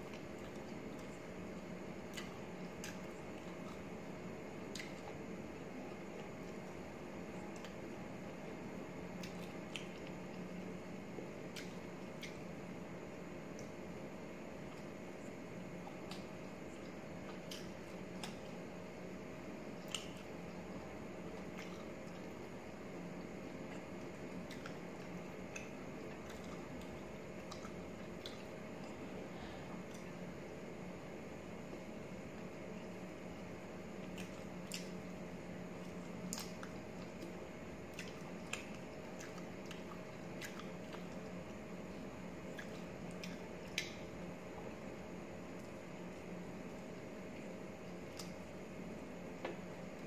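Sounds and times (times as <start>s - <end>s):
faint steady hum: 0.0s - 50.0s
chewing and wet mouth smacks: 2.1s - 3.9s, 4.7s - 5.2s, 9.2s - 10.4s, 11.5s - 12.4s, 16.0s - 18.6s, 19.8s - 20.3s, 23.7s - 29.0s, 34.0s - 35.0s, 35.8s - 41.4s, 42.5s - 44.0s
close chewing: 35.8s - 41.3s.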